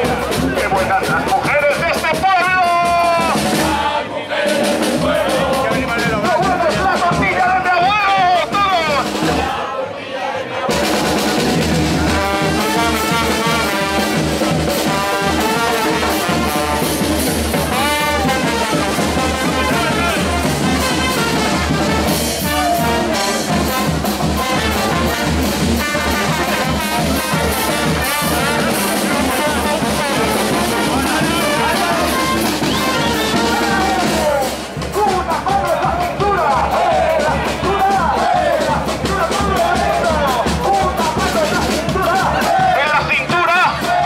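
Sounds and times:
bass drum and cymbal beat: 0:00.0 - 0:09.6, 0:10.7 - 0:44.0
trombones and trumpets: 0:00.0 - 0:44.0
tuba: 0:02.9 - 0:35.2.

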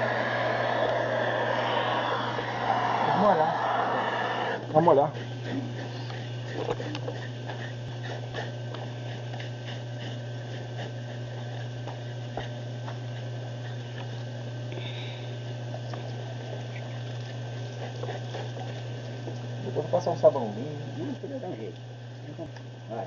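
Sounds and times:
low hum: 0:00.0 - 0:04.7.

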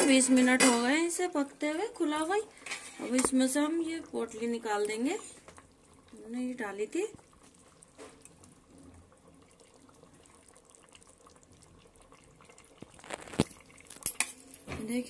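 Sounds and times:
wet squelching and dripping: 0:09.5 - 0:14.1
metal knife clinking on pot: 0:14.0 - 0:14.6.

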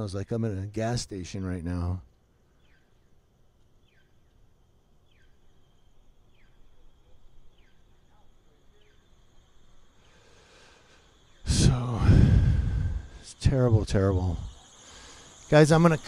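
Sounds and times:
faint high-pitched hum: 0:00.0 - 0:16.0.

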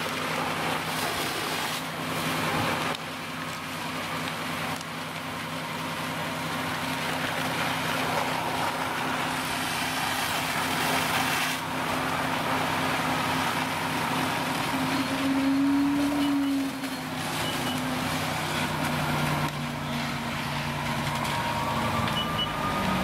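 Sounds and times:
diesel engine running: 0:00.0 - 0:23.0
rush of water and fire: 0:00.0 - 0:23.0.

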